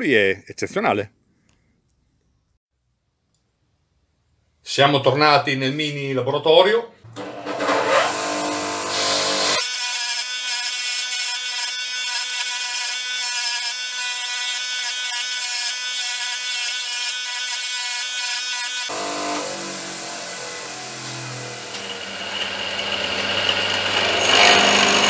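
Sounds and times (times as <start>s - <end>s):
bench grinder grinding steel: 7.1s - 25.0s.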